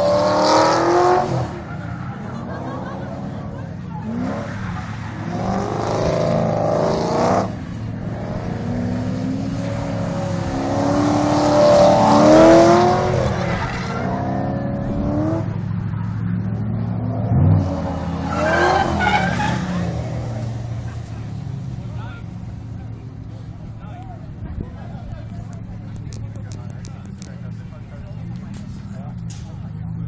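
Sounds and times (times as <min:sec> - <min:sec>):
car engine revving: 0:00.0 - 0:30.0
tyres screeching: 0:17.9 - 0:21.2.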